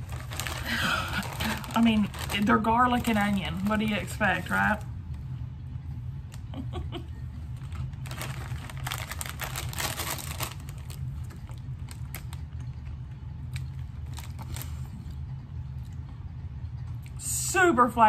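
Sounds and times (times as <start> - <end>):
potato chip crunching: 0.0 - 4.8, 7.6 - 15.1
low hum: 0.0 - 18.0.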